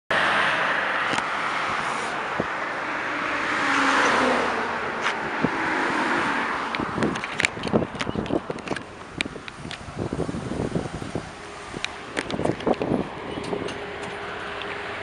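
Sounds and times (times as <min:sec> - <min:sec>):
car passing by: 0:00.1 - 0:07.0.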